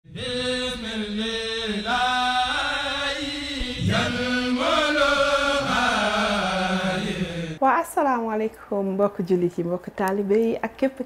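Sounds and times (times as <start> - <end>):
voice chanting long held notes: 0.0 - 7.6.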